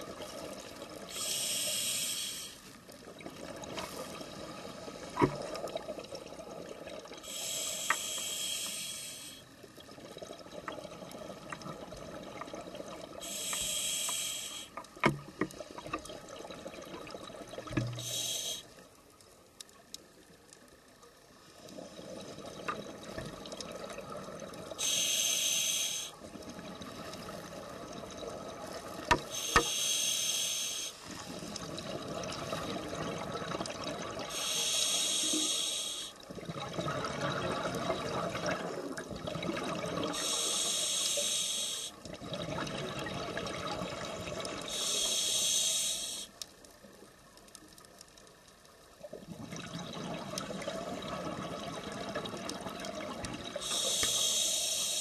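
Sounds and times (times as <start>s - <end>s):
diver inhaling through regulator: 1.1s - 2.6s, 7.2s - 9.5s, 13.2s - 14.8s, 17.9s - 18.7s, 24.8s - 26.2s, 29.3s - 31.0s, 34.3s - 36.2s, 40.1s - 42.0s, 44.7s - 46.4s, 53.6s - 55.0s
exhaust bubbles hissing: 10.4s - 14.8s, 16.4s - 18.7s, 21.8s - 46.4s, 49.3s - 55.0s.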